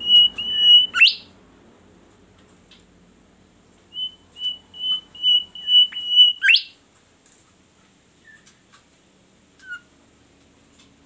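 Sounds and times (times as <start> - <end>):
songbird whistling notes: 0.0 - 1.3, 3.9 - 6.8, 9.6 - 9.9.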